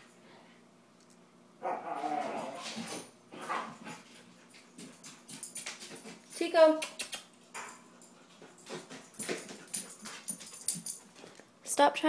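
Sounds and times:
huskies howling: 0:01.6 - 0:02.8.

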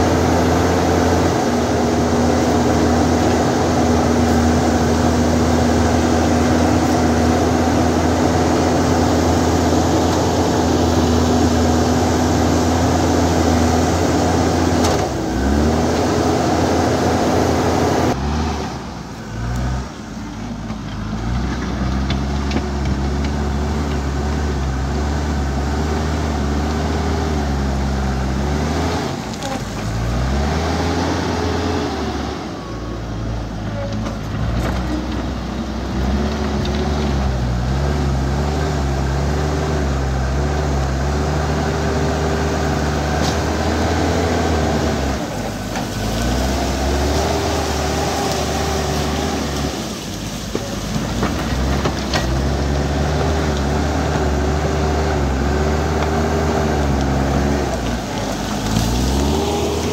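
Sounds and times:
diesel engine under load: 0:00.0 - 0:59.9.

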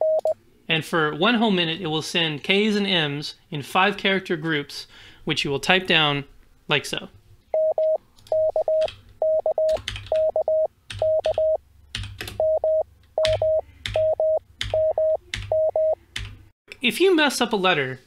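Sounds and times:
morse code tone: 0:00.0 - 0:00.4, 0:07.6 - 0:11.6, 0:12.4 - 0:16.0
computer keyboard keystrokes: 0:09.6 - 0:10.3, 0:10.9 - 0:12.4, 0:13.2 - 0:15.6.

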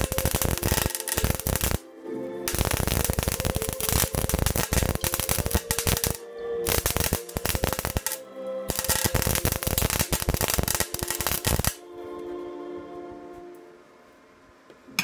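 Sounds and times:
welder arc crackling: 0:00.0 - 0:01.9, 0:02.5 - 0:11.8
quiet background music: 0:00.0 - 0:15.0.

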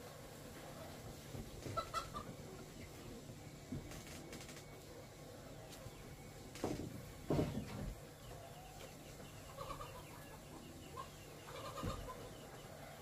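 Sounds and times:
chickens clucking: 0:00.5 - 0:03.9, 0:06.8 - 0:13.0.

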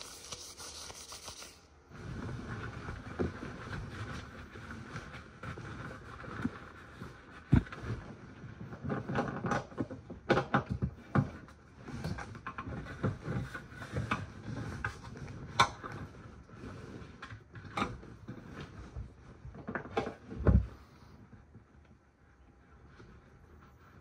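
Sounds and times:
plastic sleeves rustling: 0:00.0 - 0:09.8.

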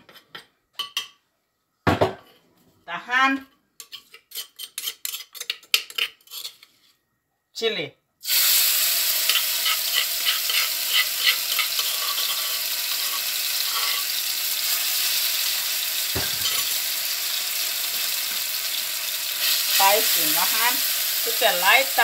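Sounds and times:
thump: 0:01.8 - 0:02.2, 0:16.2 - 0:16.5
chili paste sizzling in oil: 0:08.2 - 0:22.0.

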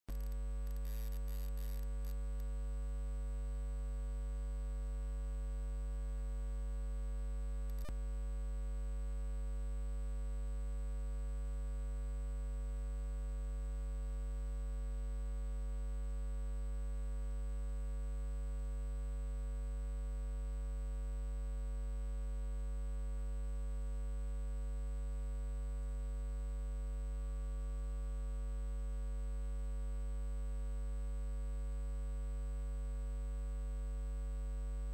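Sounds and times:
crackle: 0:00.1 - 0:02.6, 0:07.6 - 0:08.0
electrical hum: 0:00.1 - 0:04.0, 0:06.3 - 0:09.3
faint click: 0:07.7 - 0:08.0.

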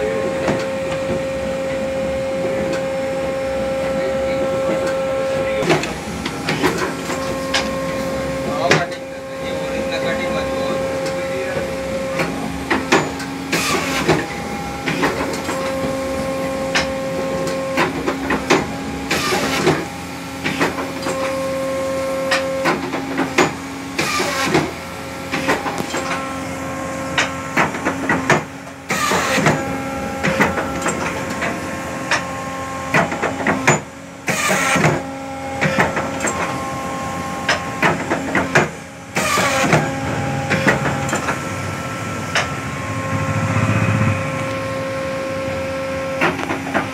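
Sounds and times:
motor hum: 0:00.0 - 0:46.9
machine clicks and clunks: 0:05.6 - 0:07.8, 0:12.2 - 0:16.0, 0:16.7 - 0:21.4, 0:22.3 - 0:26.3, 0:27.1 - 0:32.3, 0:32.9 - 0:35.0, 0:35.6 - 0:36.6, 0:37.4 - 0:41.5, 0:42.3 - 0:42.6, 0:46.1 - 0:46.9
guillotine cutting rush: 0:39.2 - 0:46.4.

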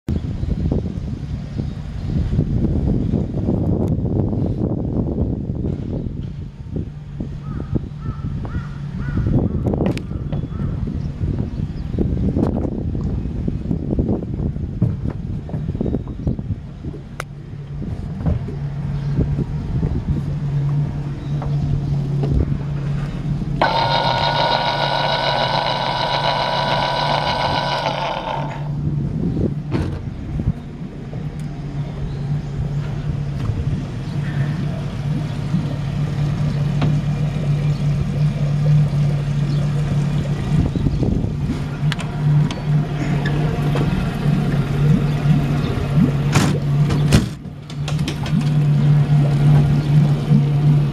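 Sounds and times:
boat engine idling: 0:05.2 - 0:50.9
high buzzing tone: 0:23.6 - 0:28.8.

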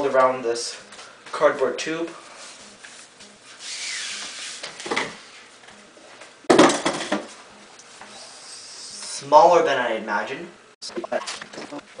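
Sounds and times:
short scrape: 0:03.5 - 0:04.6.

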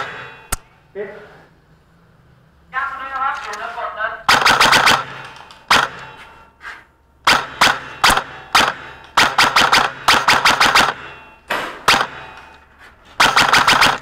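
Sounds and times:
airsoft rifle firing: 0:04.3 - 0:06.2, 0:07.2 - 0:12.4, 0:13.2 - 0:14.0.

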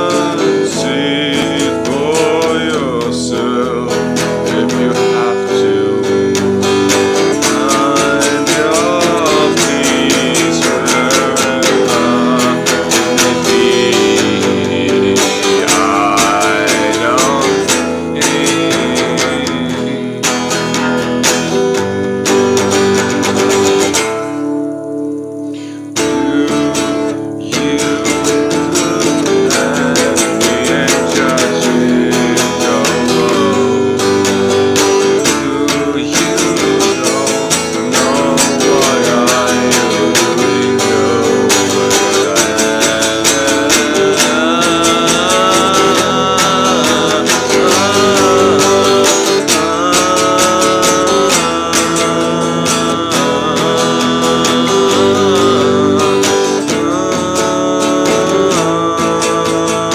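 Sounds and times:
man singing: 0:00.0 - 0:59.9
strummed acoustic guitar: 0:00.0 - 0:59.9.

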